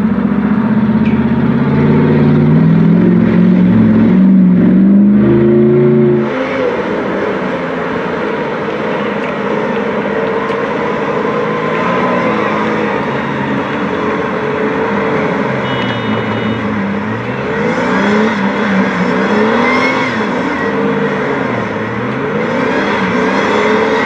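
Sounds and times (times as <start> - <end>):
engine revving: 0.0 - 8.0, 11.0 - 24.0.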